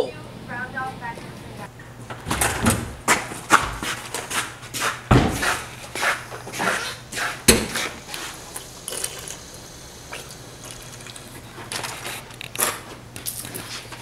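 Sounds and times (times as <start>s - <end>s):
drinking fountain water hissing: 5.4s - 12.3s
wet drinking sounds: 6.6s - 12.6s.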